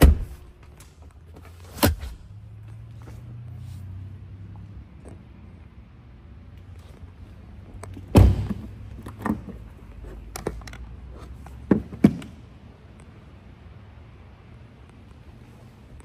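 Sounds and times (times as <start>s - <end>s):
car door shutting: 8.1s - 8.7s.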